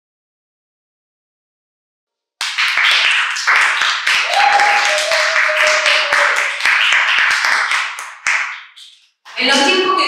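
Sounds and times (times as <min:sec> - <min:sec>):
rapid sharp claps: 0:02.4 - 0:09.8
crowd noise: 0:04.2 - 0:07.1.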